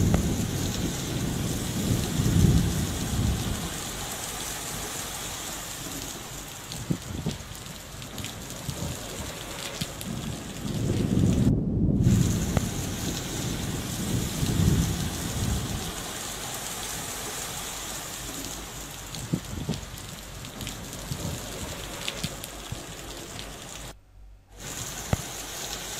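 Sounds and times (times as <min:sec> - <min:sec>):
heavy rain pouring: 0:00.0 - 0:25.9
low rumble: 0:08.2 - 0:24.5.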